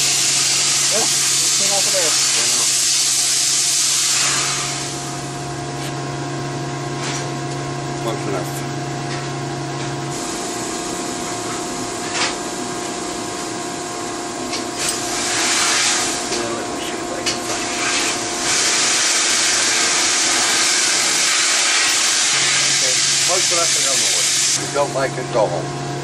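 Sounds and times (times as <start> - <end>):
air hissing: 0.0 - 6.0, 10.1 - 11.2, 14.7 - 16.6, 17.4 - 25.0
shop machinery humming: 0.0 - 26.0.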